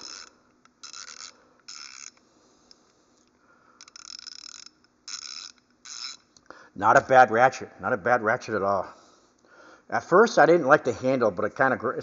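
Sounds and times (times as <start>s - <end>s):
ratchet wrench clicking: 0.0s - 2.2s, 3.8s - 6.4s.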